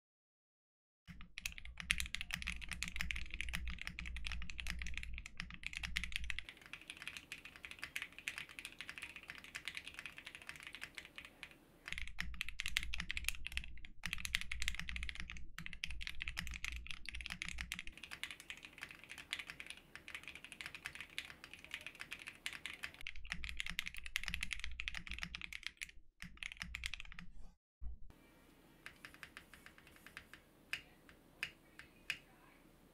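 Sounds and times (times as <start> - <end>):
mechanical keyboard typing: 1.1 - 27.2, 28.8 - 32.2.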